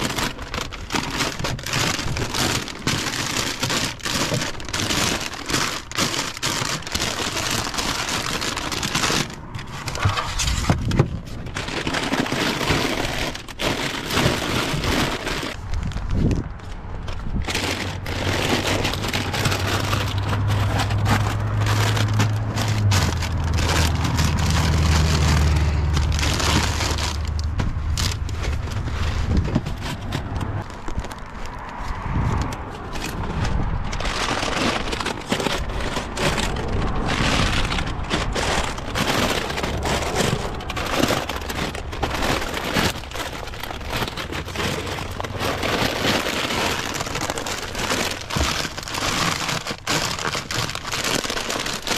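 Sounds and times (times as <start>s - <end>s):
plastic bags crinkling: 0.0s - 51.9s.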